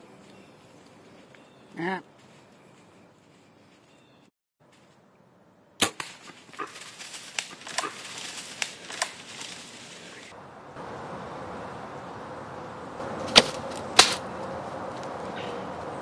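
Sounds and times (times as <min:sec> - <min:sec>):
steady outdoor hiss: 0:00.0 - 0:04.0, 0:04.6 - 0:16.0
rustling in dry leaves: 0:00.0 - 0:05.1, 0:05.9 - 0:10.4, 0:13.0 - 0:15.8
bow shot snap: 0:05.8 - 0:06.4.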